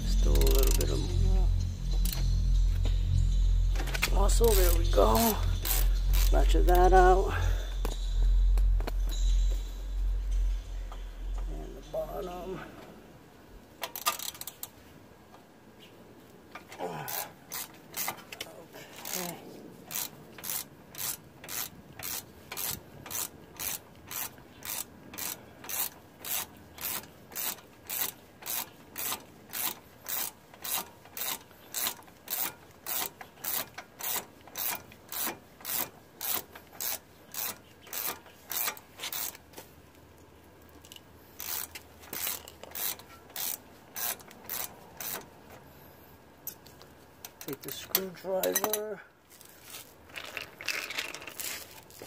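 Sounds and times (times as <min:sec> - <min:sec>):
ratchet wrench clicking: 0:00.0 - 0:07.0, 0:13.8 - 0:14.8, 0:17.1 - 0:39.4, 0:40.8 - 0:45.3.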